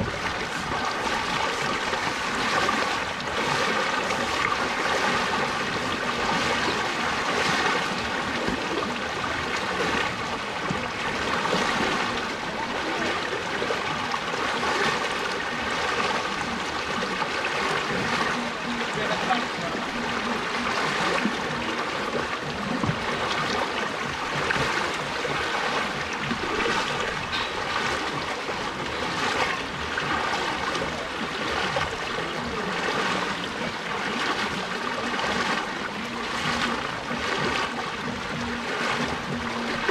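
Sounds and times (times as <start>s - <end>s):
floodwater rushing: 0.0s - 39.9s.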